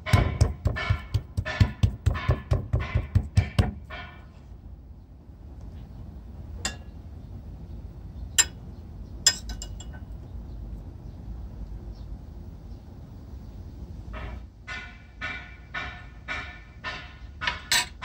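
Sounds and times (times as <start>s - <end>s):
low steady rumble: 0.0s - 14.7s
utensils clinking: 9.3s - 10.1s, 17.5s - 18.0s.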